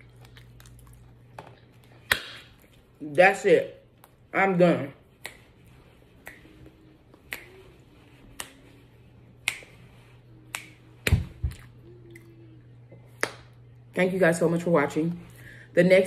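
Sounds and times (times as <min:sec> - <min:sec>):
fingers snapping: 0:02.1 - 0:02.6, 0:05.2 - 0:05.5, 0:06.2 - 0:07.7, 0:08.3 - 0:08.7, 0:09.4 - 0:09.8, 0:10.5 - 0:12.3, 0:13.2 - 0:13.6.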